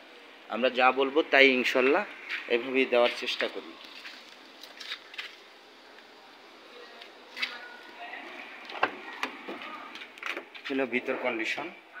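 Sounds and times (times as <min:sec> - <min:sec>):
yard noise: 0:00.0 - 0:12.0
faint background voices: 0:05.5 - 0:12.0.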